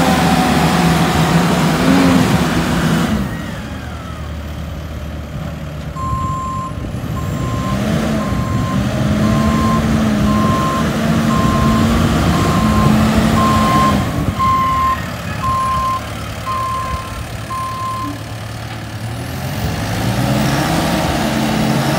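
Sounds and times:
diesel engine running: 0:00.0 - 0:21.9
backup alarm beeping: 0:06.0 - 0:18.2.

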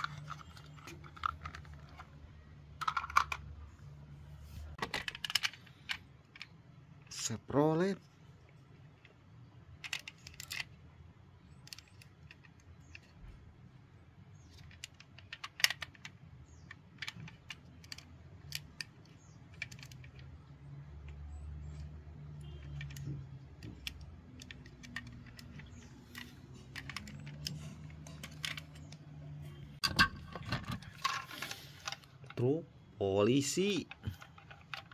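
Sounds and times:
toy cars clicking and clacking: 0:00.0 - 0:03.6, 0:04.8 - 0:07.3, 0:09.7 - 0:13.3, 0:14.4 - 0:29.1, 0:33.4 - 0:34.9.

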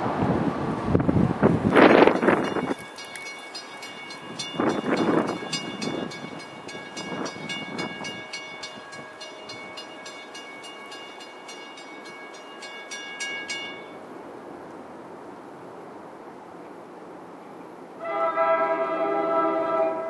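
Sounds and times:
wind buffeting microphone: 0:00.0 - 0:10.0
railroad crossing bell ringing: 0:02.0 - 0:14.2.

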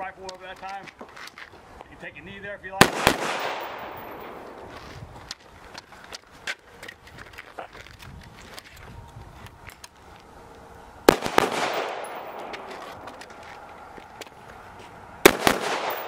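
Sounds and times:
rifle shots with echo: 0:02.8 - 0:04.7, 0:11.1 - 0:12.8, 0:15.2 - 0:16.0.

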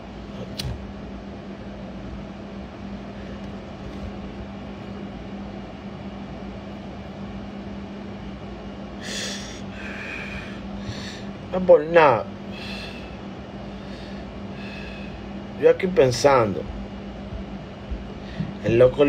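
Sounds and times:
low electrical hum: 0:00.0 - 0:19.0.

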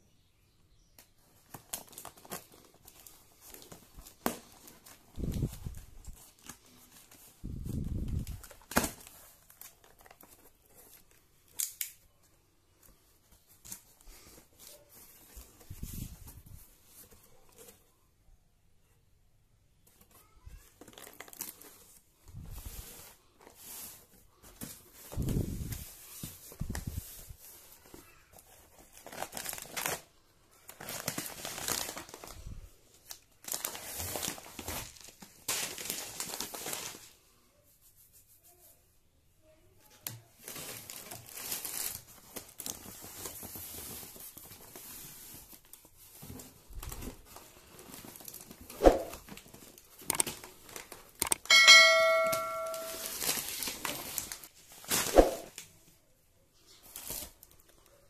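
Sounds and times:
plastic bags and cardboard rustling: 0:01.0 - 0:18.2, 0:19.6 - 0:58.0
short ringing chime: 0:51.4 - 0:53.2.

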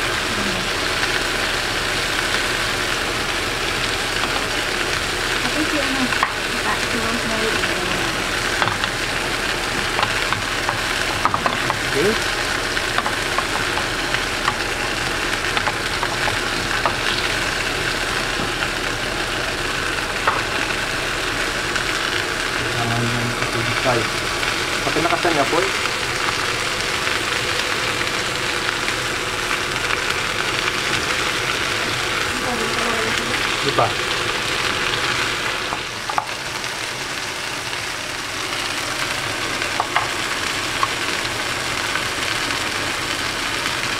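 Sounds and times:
steaks sizzling in butter: 0:00.0 - 0:43.9
spattering fat popping: 0:07.2 - 0:37.0.

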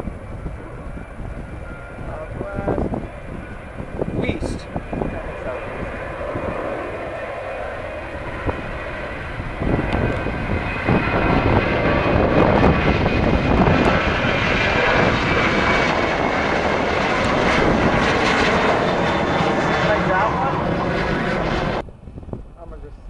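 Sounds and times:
jet engines roaring at takeoff: 0:00.0 - 0:23.0.

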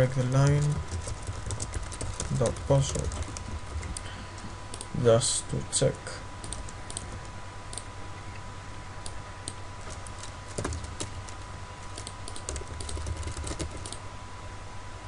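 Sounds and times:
computer keyboard typing: 0:00.0 - 0:04.9, 0:06.4 - 0:07.8, 0:09.0 - 0:14.0
faint steady hum: 0:00.0 - 0:15.0.

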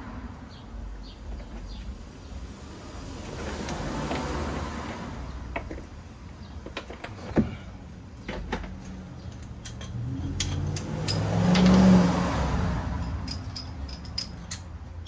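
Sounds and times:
hand tools clicking and knocking: 0:08.2 - 0:12.0, 0:13.0 - 0:15.0.

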